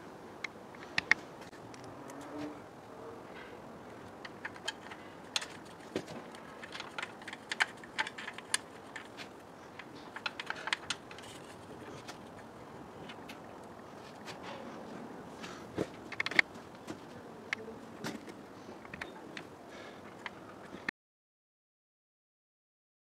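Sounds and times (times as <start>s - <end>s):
clicks of small parts handled: 3.4s - 14.6s, 16.0s - 16.5s.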